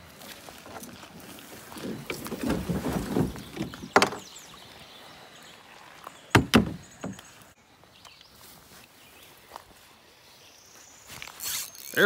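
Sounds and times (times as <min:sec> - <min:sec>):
rustle: 0:00.0 - 0:12.0
hollow knocks on plastic kayak: 0:02.4 - 0:04.2, 0:06.3 - 0:07.2.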